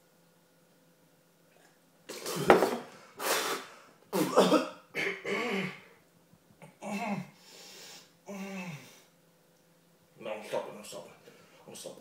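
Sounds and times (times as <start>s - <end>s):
man coughing: 4.2s - 5.9s.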